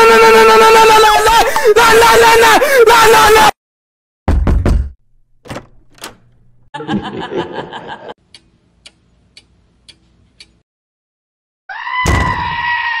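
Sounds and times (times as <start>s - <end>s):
clock ticking: 8.3s - 10.6s.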